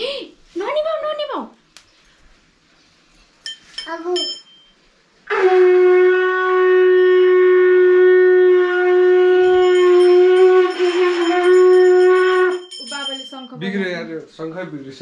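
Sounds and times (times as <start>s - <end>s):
hand bell ringing faintly: 3.4s - 4.8s, 9.5s - 13.9s
conch shell blown: 5.2s - 12.8s.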